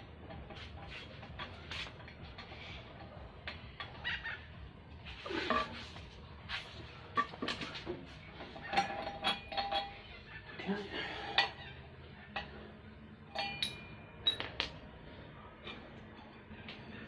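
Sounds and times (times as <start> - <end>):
metal tools clinking on pulleys: 8.6 - 11.7, 13.3 - 14.4.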